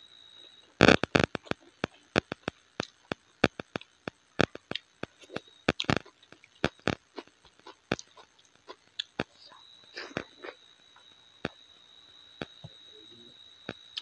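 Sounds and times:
wet chewing and lip smacks: 4.5 - 9.3.

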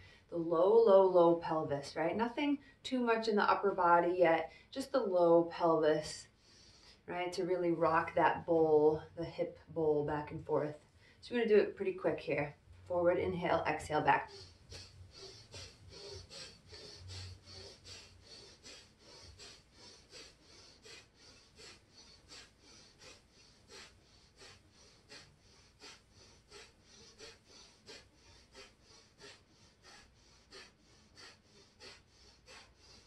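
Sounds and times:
person breathing quickly: 0.0 - 0.3, 6.1 - 7.1, 14.2 - 33.0.

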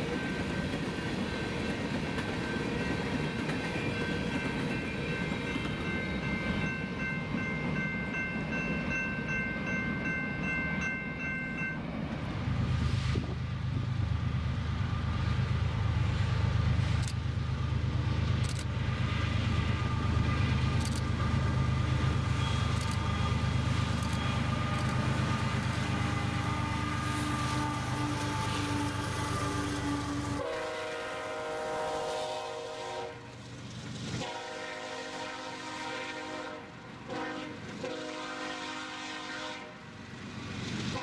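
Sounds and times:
train wheels clicking: 0.0 - 10.9, 14.8 - 30.7
freight train wheels rolling: 0.0 - 35.4
diesel locomotive engine rumble: 0.0 - 41.0.

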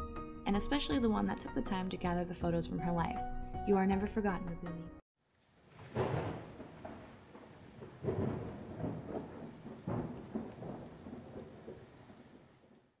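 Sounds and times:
steady rain: 5.2 - 13.0
thunder rumbling: 5.5 - 13.0.

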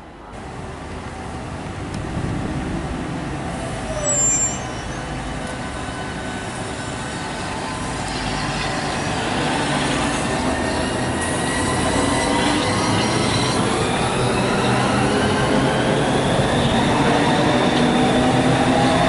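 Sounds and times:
electric train hum and rumble: 0.0 - 19.0
brief high squeak: 3.9 - 5.1.

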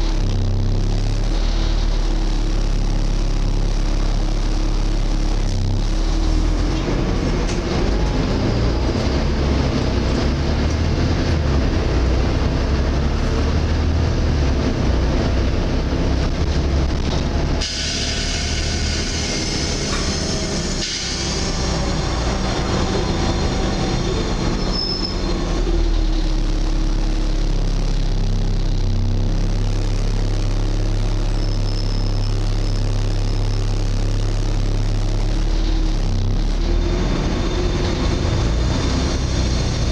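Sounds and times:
bus engine whining: 0.0 - 39.9.

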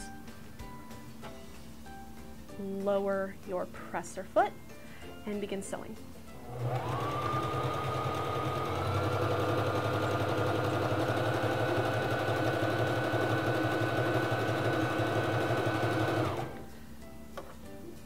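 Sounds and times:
sewing machine motor whine: 6.4 - 16.6.

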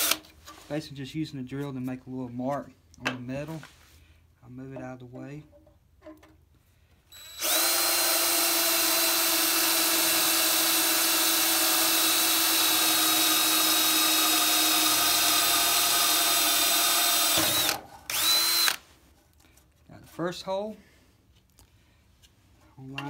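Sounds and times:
cordless drill boring metal: 0.0 - 0.3, 7.1 - 18.8.

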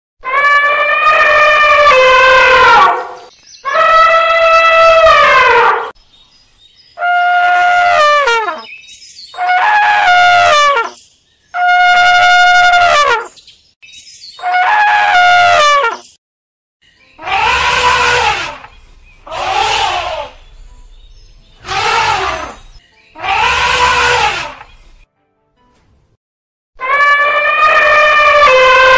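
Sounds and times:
elephants trumpeting: 0.2 - 6.0, 7.0 - 8.7, 9.4 - 11.0, 11.6 - 13.3, 14.4 - 16.0, 17.2 - 20.7, 21.6 - 24.8, 26.8 - 28.9.

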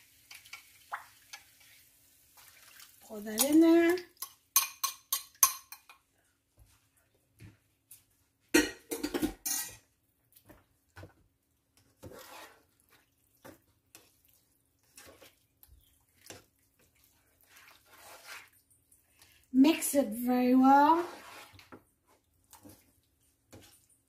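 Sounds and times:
tongs scraping and knocking on skillet: 0.2 - 1.8, 3.3 - 6.0, 8.5 - 14.2, 14.8 - 18.7.

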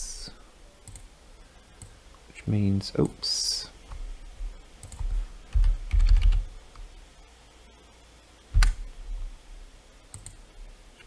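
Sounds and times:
keyboard typing: 4.8 - 6.5.

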